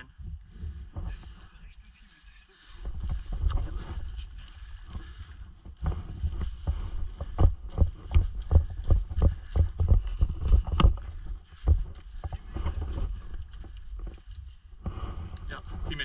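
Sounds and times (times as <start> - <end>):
running footsteps through dry leaves: 2.7 - 14.7.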